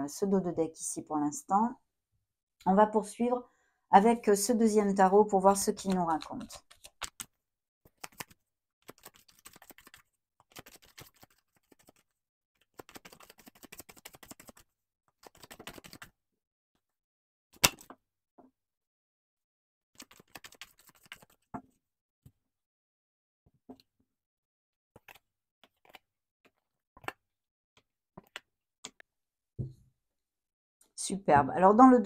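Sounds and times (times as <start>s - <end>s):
cards being shuffled: 5.5s - 12.1s, 12.8s - 14.6s, 15.2s - 16.1s, 20.0s - 21.5s, 28.2s - 28.5s.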